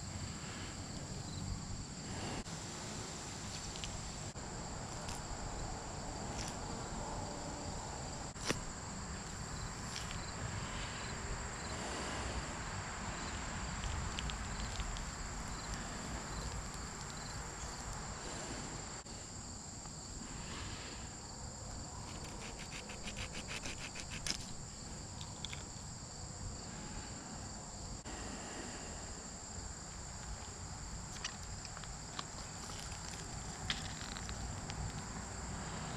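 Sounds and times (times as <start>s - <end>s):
insects droning: 0.0s - 35.9s.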